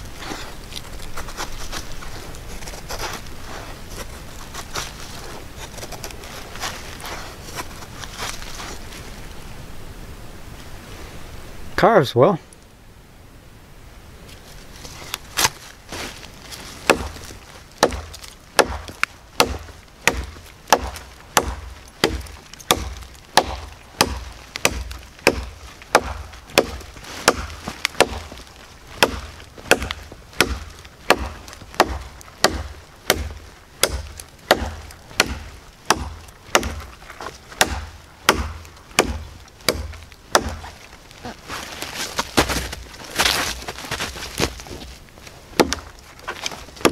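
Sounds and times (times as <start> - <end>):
knife chopping into wood: 16.9 - 17.2, 17.8 - 28.4, 29.0 - 36.9, 37.6 - 40.8, 45.6 - 45.9.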